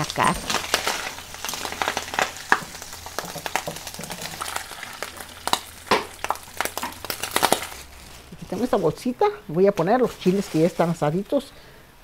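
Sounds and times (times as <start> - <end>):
bacon sizzling with pops: 0.0 - 9.1.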